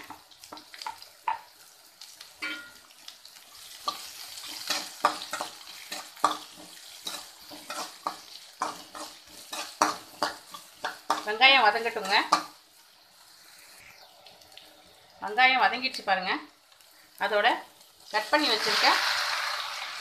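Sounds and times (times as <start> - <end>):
onions sizzling in oil: 0.0 - 20.0
spatula scraping pan: 3.8 - 12.6.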